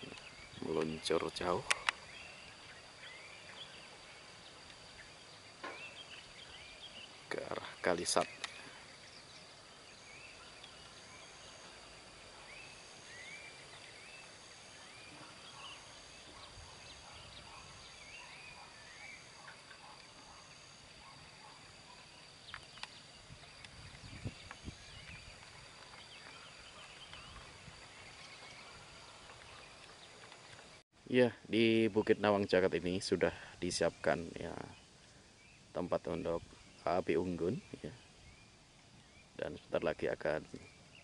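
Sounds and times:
bird chirps: 0.0s - 30.8s
steady high-pitched whine: 0.0s - 41.0s.

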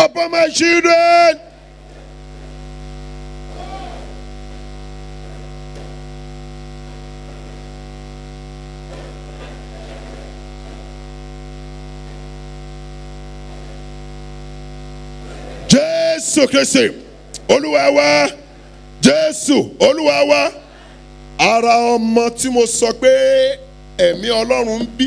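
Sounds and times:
congregation praying aloud: 0.0s - 2.6s, 3.4s - 4.6s, 15.2s - 25.0s
electrical mains hum: 0.0s - 25.0s.

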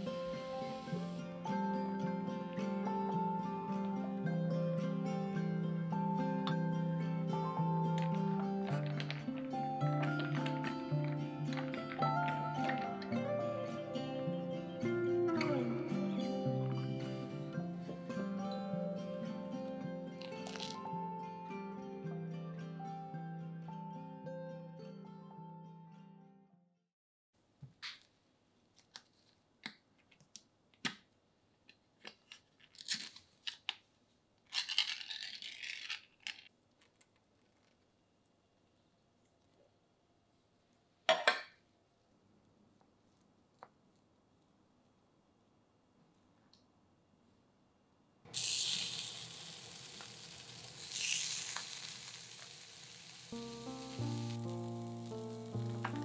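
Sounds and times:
soft background music: 0.0s - 26.5s, 53.2s - 56.0s
meat sizzling in frying pan: 48.3s - 56.0s.

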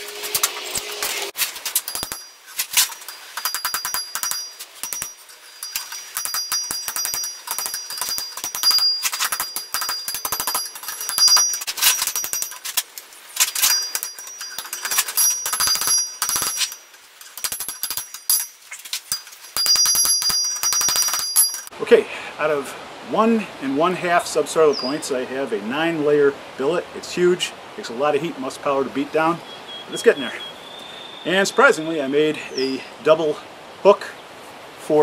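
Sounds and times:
anvil ringing: 1.8s - 12.7s, 13.6s - 21.7s
hammer striking iron on anvil: 3.4s - 12.6s.

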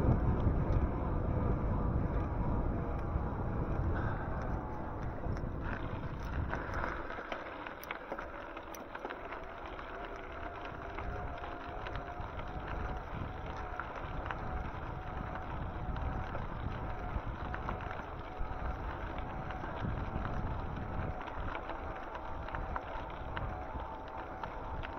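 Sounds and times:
faint steady whine: 0.0s - 24.9s
road noise: 0.0s - 24.9s
wind rumbling on microphone: 0.0s - 24.9s.

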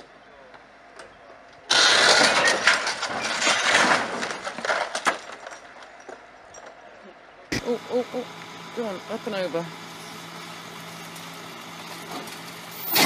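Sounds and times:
metal crunching and scraping: 1.6s - 6.8s, 9.9s - 13.0s
car crashing onto road: 1.7s - 5.6s.

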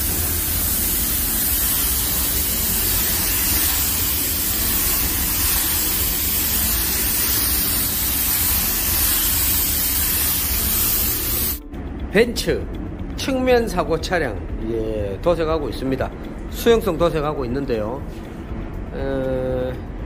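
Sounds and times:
paint spray gun hissing: 0.0s - 11.6s.

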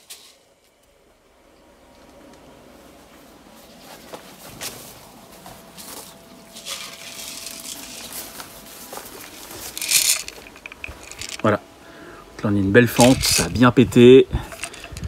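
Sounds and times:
footsteps through long grass: 2.8s - 11.2s
rustling: 2.8s - 11.5s.

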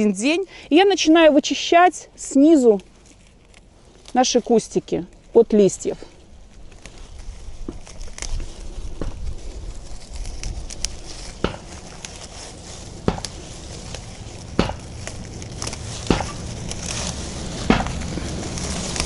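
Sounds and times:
foliage rustling: 0.0s - 19.0s
leaves snapping off stems: 6.4s - 19.0s.

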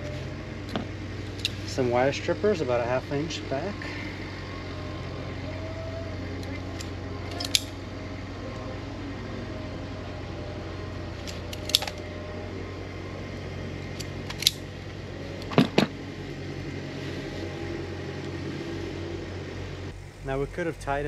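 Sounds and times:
wire strippers clicking: 0.0s - 2.6s, 5.4s - 8.7s, 10.4s - 12.3s, 13.9s - 16.0s
low mechanical hum: 0.0s - 21.0s.

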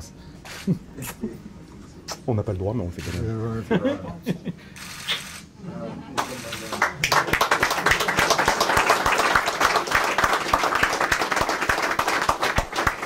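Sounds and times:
people clapping: 6.1s - 13.0s.

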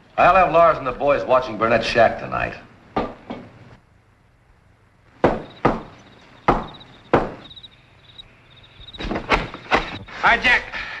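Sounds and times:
fist knocking on wooden door: 5.2s - 7.5s.

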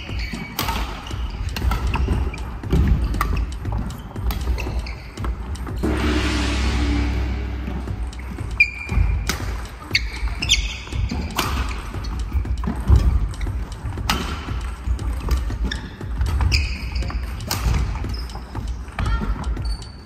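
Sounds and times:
shoe squeaks: 0.0s - 5.8s, 8.6s - 13.9s, 14.7s - 20.0s
racket hitting shuttlecock: 0.2s - 5.7s, 15.2s - 18.1s.

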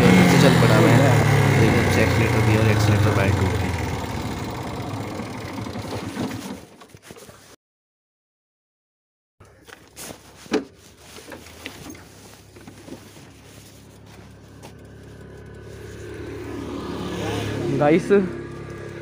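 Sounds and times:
faint motorcycle engine idling: 0.0s - 6.4s, 9.4s - 16.8s, 17.7s - 19.0s.

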